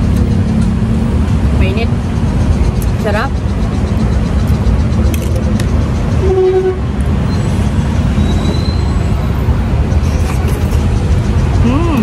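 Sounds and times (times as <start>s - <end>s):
heavy road traffic rumble: 0.0s - 12.0s
car horn toot: 6.2s - 6.9s.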